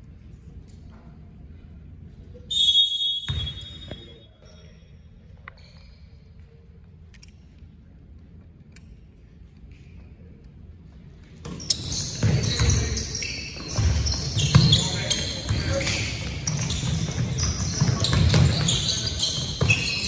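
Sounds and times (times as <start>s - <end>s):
referee whistle: 2.5s - 4.3s.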